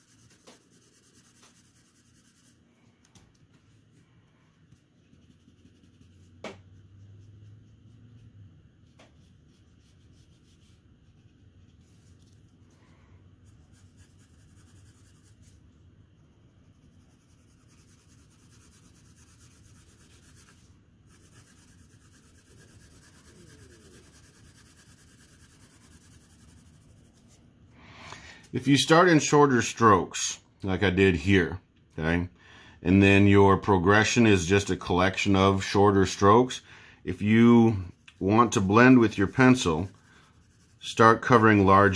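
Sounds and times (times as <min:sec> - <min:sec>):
pencil scratching on paper: 0:00.0 - 0:02.6, 0:04.8 - 0:12.5, 0:13.4 - 0:27.4, 0:37.2 - 0:41.9.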